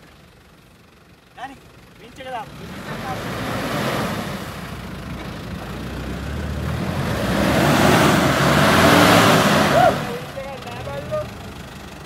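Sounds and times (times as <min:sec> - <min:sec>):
engine running under load: 0:00.0 - 0:12.0.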